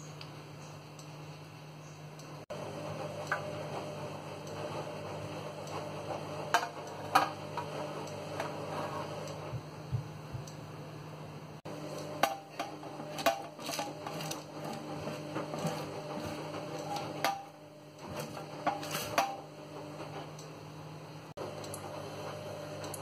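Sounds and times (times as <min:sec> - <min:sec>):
steady low hum: 0:00.0 - 0:23.0
spatula scraping metal tray: 0:08.4 - 0:09.3.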